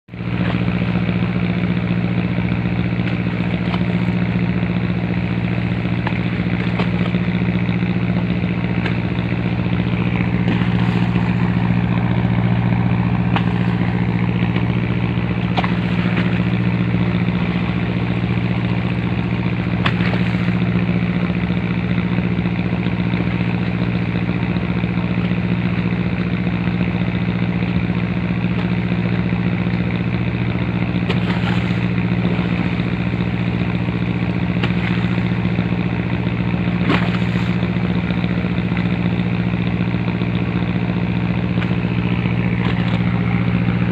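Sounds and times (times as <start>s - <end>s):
engine running steadily: 0.0s - 43.9s.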